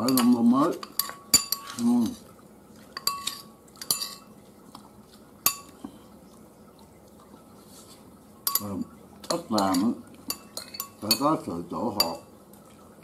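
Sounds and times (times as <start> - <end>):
spoons clinking on dishes: 0.0 - 2.2, 3.0 - 4.3, 5.4 - 5.8, 8.4 - 12.3.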